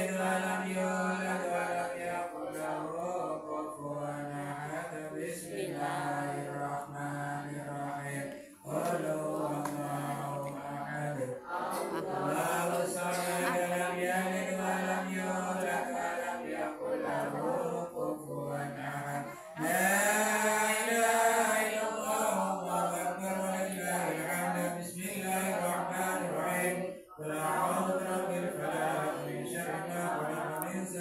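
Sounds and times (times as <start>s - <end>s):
man chanting over a microphone: 0.0s - 31.0s
men chanting in unison: 0.0s - 31.0s.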